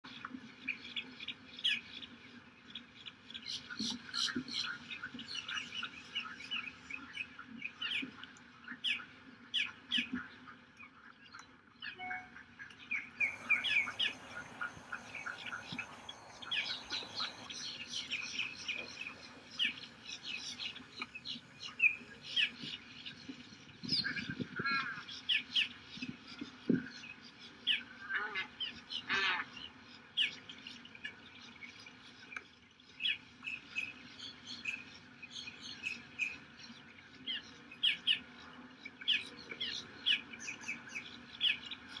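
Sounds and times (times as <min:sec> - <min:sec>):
bird trilling calls: 0:13.2 - 0:22.6
birds chirping: 0:13.2 - 0:22.8.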